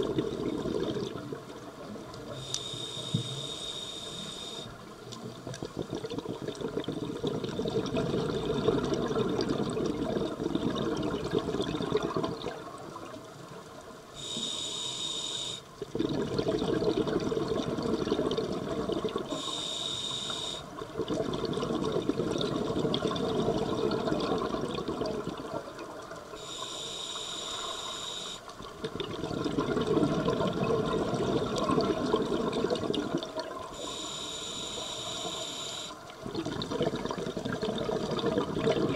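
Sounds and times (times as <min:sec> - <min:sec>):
regulator hissing inhalations: 0:02.3 - 0:04.7, 0:14.2 - 0:15.7, 0:19.3 - 0:20.7, 0:26.4 - 0:28.5, 0:33.7 - 0:36.0
rumbling exhaust bubbles: 0:36.2 - 0:38.9.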